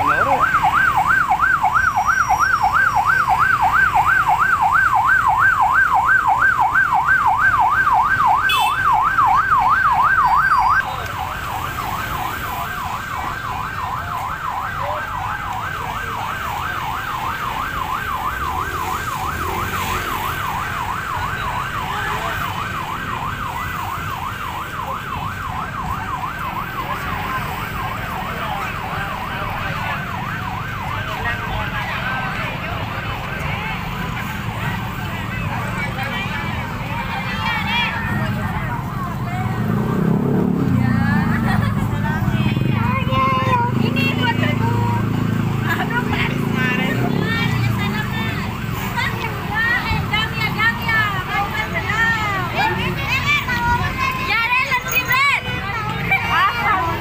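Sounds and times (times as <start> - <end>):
crowd and traffic hum: 0.0 - 57.0
police siren wailing: 0.0 - 57.0.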